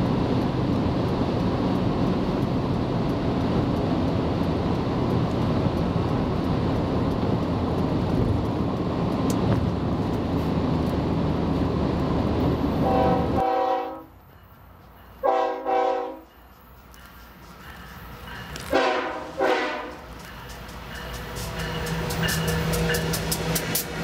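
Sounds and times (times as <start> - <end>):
car tyre and wind noise: 0.0 - 13.4
locomotive air horn: 12.8 - 14.2, 15.2 - 16.3, 18.7 - 20.0.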